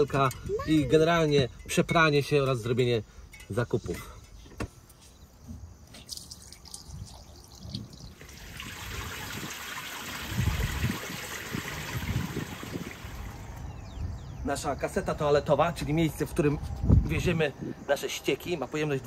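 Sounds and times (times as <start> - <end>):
water splashing onto concrete: 6.0 - 13.5.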